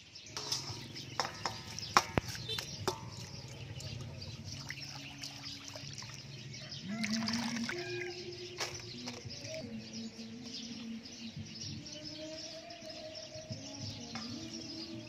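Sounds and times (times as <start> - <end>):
knocks against metal bowl: 0.3 - 4.0
water splashing: 0.4 - 8.9.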